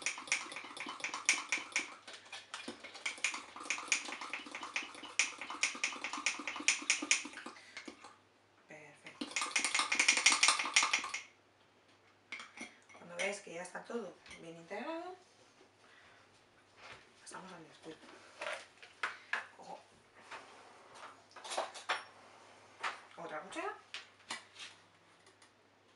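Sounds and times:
utensil beating batter in mug: 0:00.0 - 0:08.1, 0:09.1 - 0:11.3.

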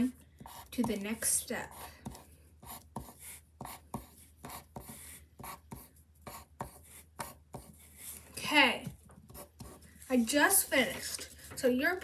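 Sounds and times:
drawing tool scratching on paper: 0:00.4 - 0:08.4, 0:09.3 - 0:10.4.

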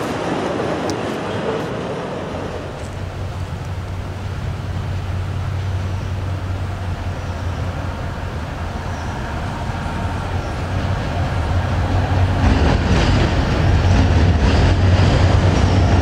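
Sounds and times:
train rail noise: 0:00.0 - 0:16.0
diesel engine rumble: 0:00.3 - 0:16.0.

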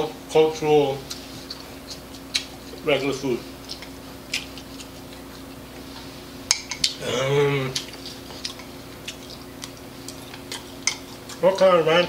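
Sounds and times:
chopsticks clicking on ceramic bowl: 0:10.1 - 0:11.7.

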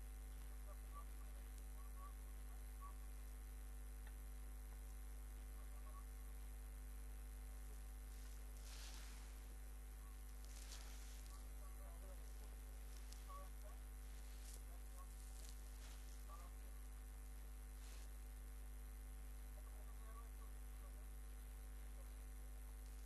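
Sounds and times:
faint steady tones: 0:00.0 - 0:23.0
low electrical hum: 0:00.0 - 0:23.0
soft rustle: 0:07.7 - 0:18.6.

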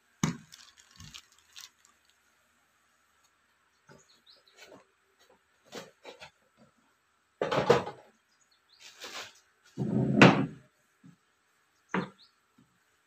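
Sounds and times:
rustling plastic bag: 0:00.2 - 0:02.4.

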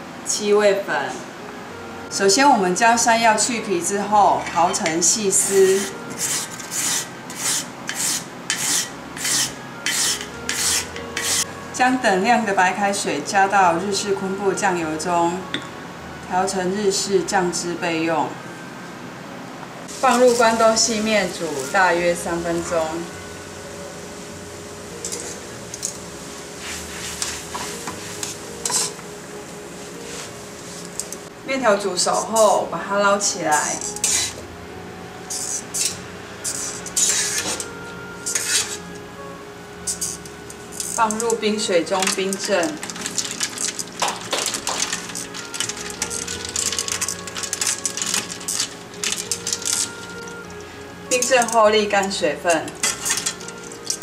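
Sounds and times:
soft background music: 0:00.0 - 0:54.0
metal tongs scraping a wok: 0:04.3 - 0:11.5, 0:20.0 - 0:22.0, 0:25.0 - 0:26.0, 0:26.6 - 0:29.0, 0:33.4 - 0:34.4, 0:35.2 - 0:38.9, 0:39.9 - 0:54.0
ice cubes clinking: 0:42.0 - 0:51.4, 0:52.8 - 0:54.0.

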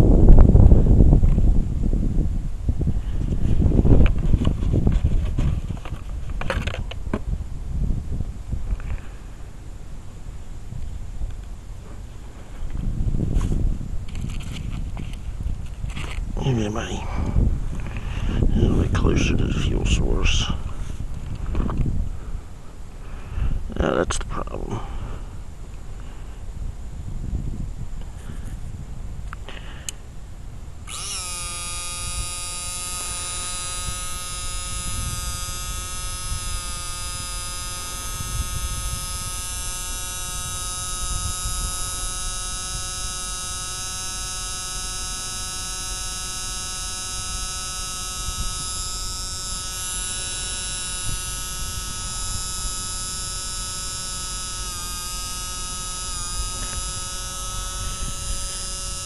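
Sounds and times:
electric fuel pump whining: 0:02.7 - 0:07.4, 0:11.3 - 0:22.4, 0:30.8 - 0:59.0.

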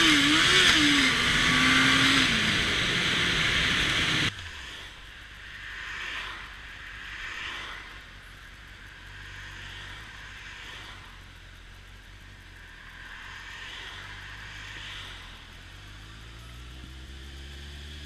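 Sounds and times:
motorcycle engine running: 0:00.0 - 0:04.4, 0:08.2 - 0:18.0
road and wind noise: 0:00.0 - 0:18.0.

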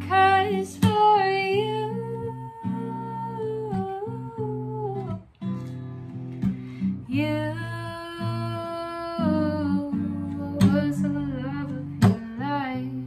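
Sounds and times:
woman singing: 0:00.0 - 0:05.3, 0:07.0 - 0:13.0
acoustic guitar strumming: 0:09.2 - 0:13.0.

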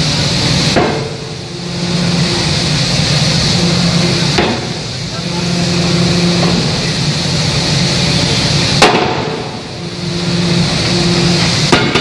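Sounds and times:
machinery hum: 0:00.0 - 0:12.0
forging hammer blows: 0:08.8 - 0:12.0.

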